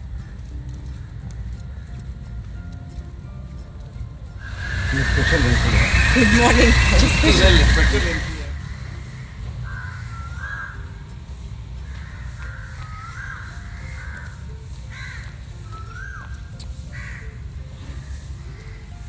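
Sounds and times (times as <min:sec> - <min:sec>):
faint background music: 0:00.0 - 0:19.0
crows cawing: 0:04.5 - 0:10.8, 0:11.9 - 0:15.4, 0:16.9 - 0:17.4.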